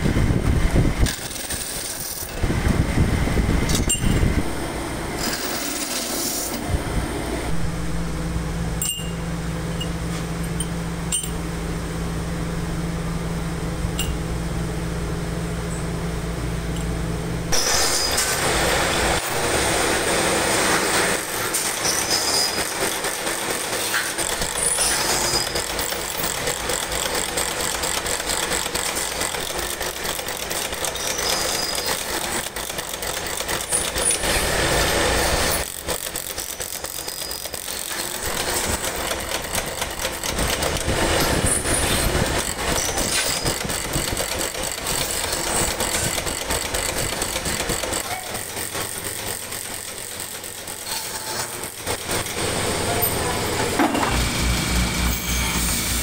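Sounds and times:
workshop machinery clatter: 0.0 - 11.6, 13.8 - 14.4, 15.6 - 56.0
short high squeaks: 17.5 - 18.4, 30.8 - 32.2, 36.8 - 38.1, 42.7 - 43.6, 50.8 - 51.6, 55.0 - 56.0.

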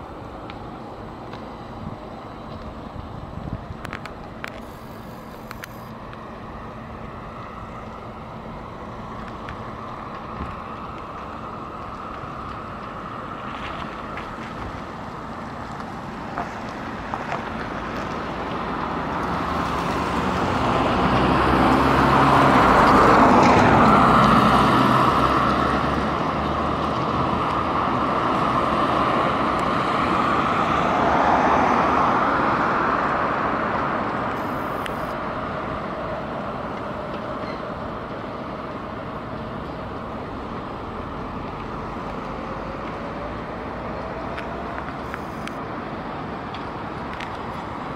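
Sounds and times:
cars passing on a street: 0.0 - 47.9
faint rising whine: 4.0 - 10.2, 34.3 - 35.2.

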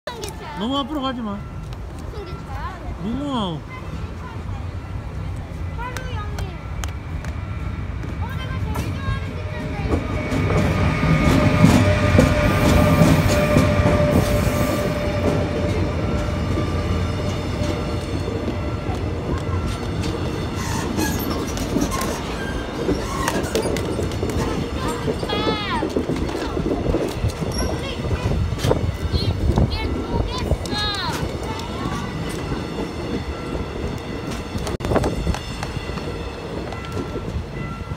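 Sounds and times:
train passing close by: 0.1 - 37.9
wheels clattering over rail joints: 15.1 - 37.9.

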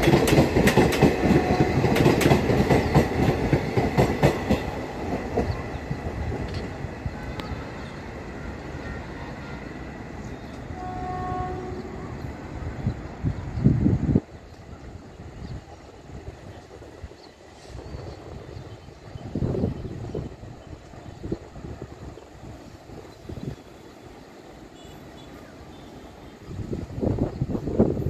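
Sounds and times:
train coaches clattering over rails: 0.0 - 12.7
distant train horn: 1.0 - 2.2, 7.1 - 12.6, 24.7 - 26.6.

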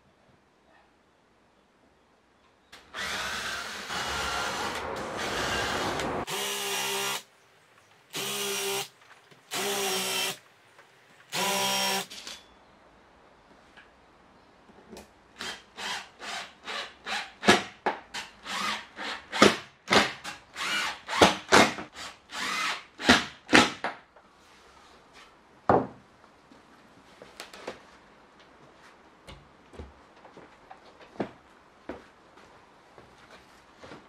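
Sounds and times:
cordless drill driving screws: 2.8 - 7.2, 8.1 - 8.9, 9.5 - 10.4, 11.3 - 12.4, 20.6 - 21.4.

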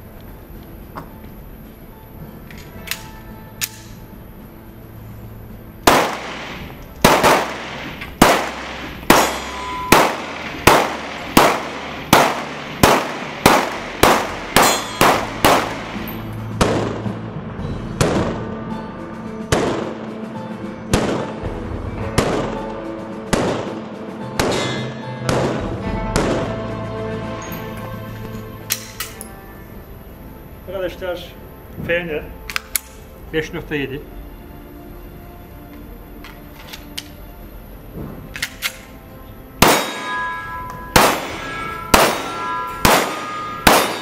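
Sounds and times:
pistol shots with echo: 5.9 - 17.0, 24.4 - 25.6, 39.6 - 44.0.

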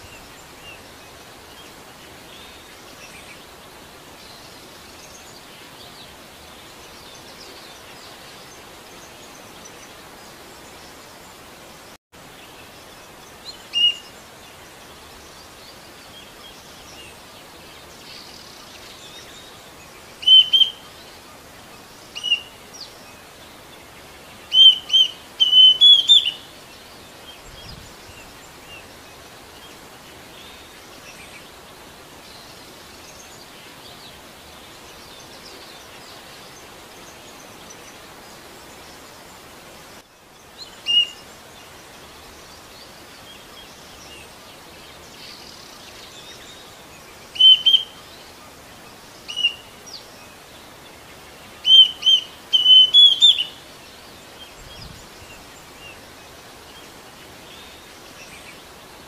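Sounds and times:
steady hiss: 0.0 - 59.0
cuckoo whistled calls: 20.2 - 20.8, 22.2 - 22.5, 24.5 - 26.4, 40.9 - 41.2, 47.4 - 48.0, 49.3 - 49.6, 51.6 - 53.6.

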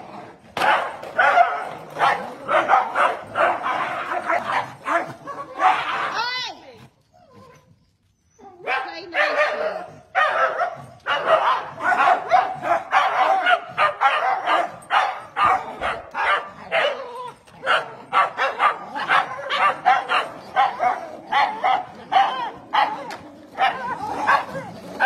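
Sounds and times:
small dogs barking: 0.6 - 6.2, 8.4 - 25.0.

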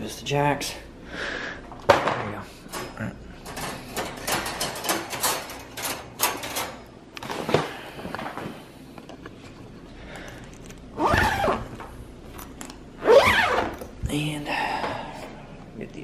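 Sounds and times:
dog whining: 13.0 - 13.8.

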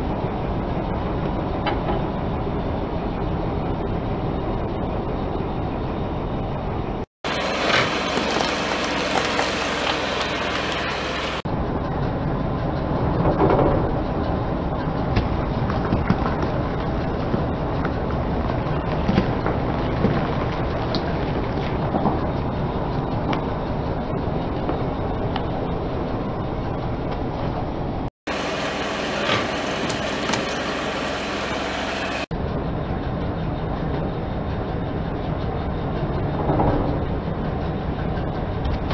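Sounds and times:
car engine running: 7.2 - 27.3, 28.3 - 32.3.

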